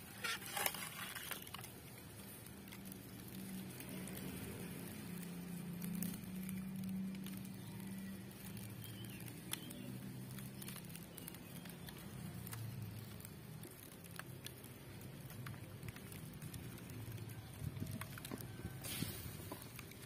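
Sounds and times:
curry simmering: 0.0 - 20.0
wood fire crackling: 0.0 - 20.0.

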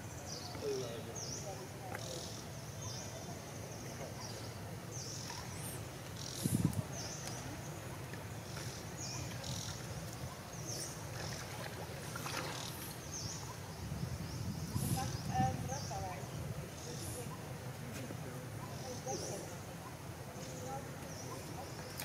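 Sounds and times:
low background noise: 0.0 - 22.0
monkeys splashing in water: 10.9 - 13.0.

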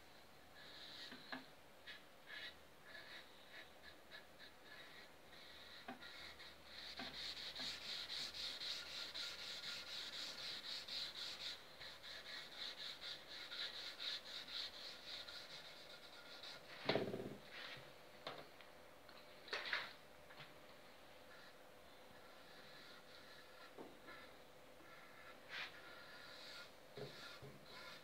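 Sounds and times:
cloth rubbing wood: 6.9 - 17.8.

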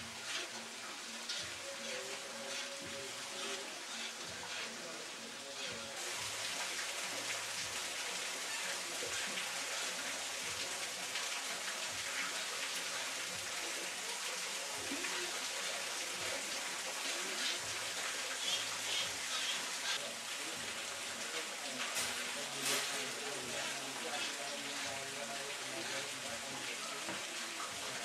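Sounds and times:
water dripping and splashing on rock: 6.0 - 28.0.

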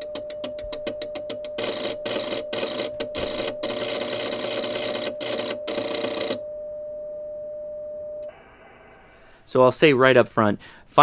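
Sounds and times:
relays clicking rapidly: 0.0 - 6.4
steady transmitter tone: 0.0 - 9.0.

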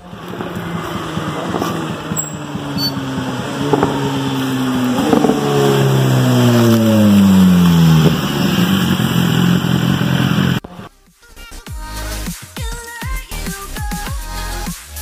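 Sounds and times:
motorcycle engine slowing down: 0.0 - 10.6
exhaust crack: 0.0 - 10.9.

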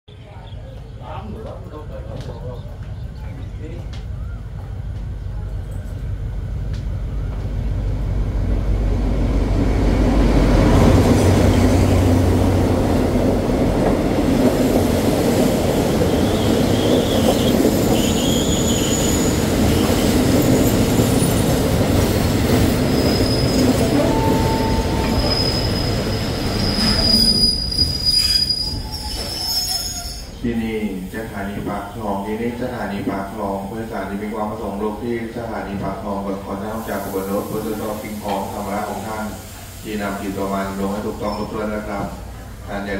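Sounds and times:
coaches rolling by: 0.1 - 8.2
train rumbling: 0.1 - 42.9
brake and wheel squeals: 16.2 - 21.5, 22.8 - 30.4, 41.2 - 41.7.

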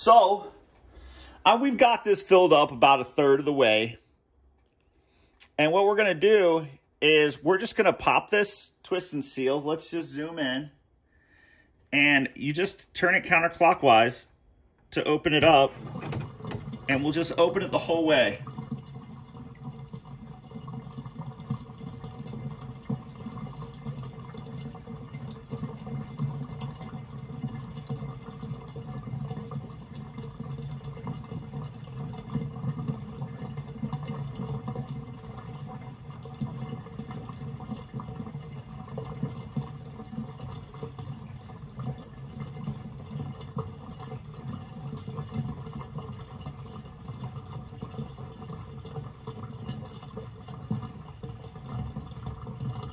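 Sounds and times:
water rushing down a sink drain: 0.0 - 4.0, 15.0 - 52.9.

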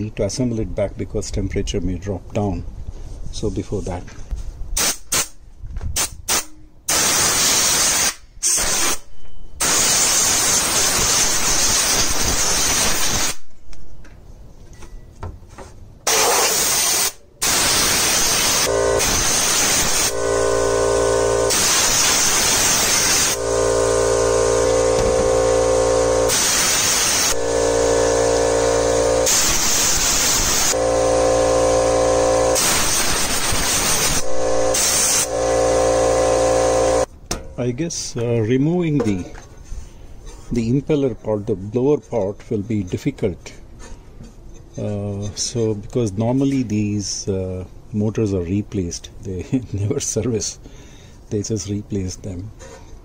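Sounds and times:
compressed air blow gun blasting: 6.0 - 13.4, 16.1 - 37.1
humming drone with whine: 17.4 - 37.1.

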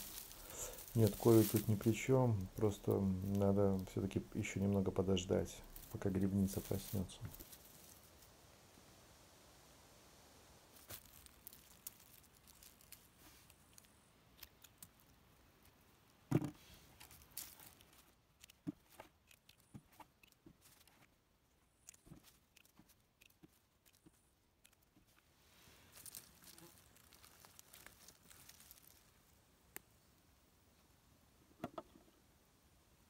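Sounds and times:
leaf litter rustling: 0.0 - 8.4, 10.7 - 15.1, 16.6 - 18.2, 25.4 - 29.4
small snaps and clicks: 10.8 - 15.8, 17.0 - 21.1, 21.8 - 25.2.

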